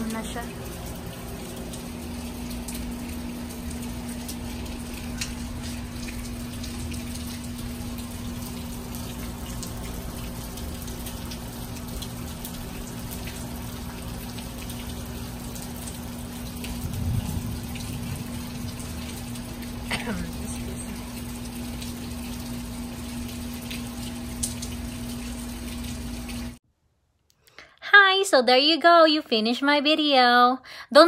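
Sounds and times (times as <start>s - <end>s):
light rain dripping: 0.0s - 26.6s
low rumble: 16.7s - 21.1s.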